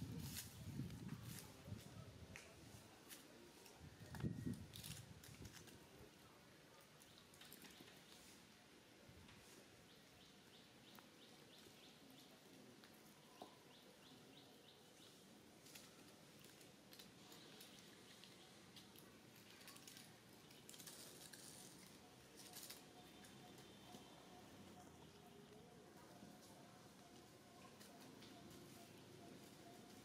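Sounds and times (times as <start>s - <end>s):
bird chirping: 21.6s - 25.8s.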